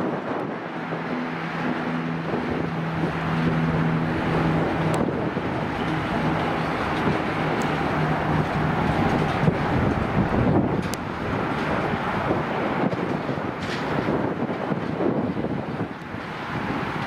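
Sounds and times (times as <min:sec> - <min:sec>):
jet engines at takeoff thrust: 0:00.0 - 0:17.0.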